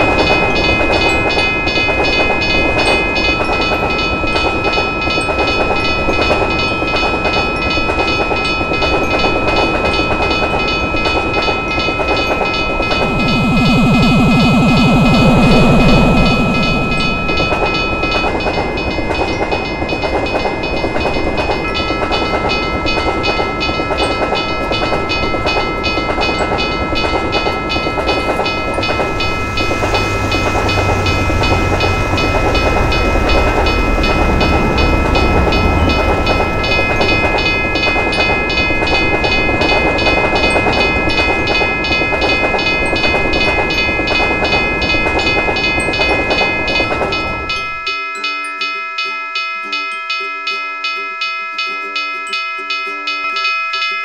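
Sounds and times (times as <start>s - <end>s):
railroad crossing bell ringing: 0.0s - 54.0s
train wheels clacking on rails: 0.0s - 54.0s.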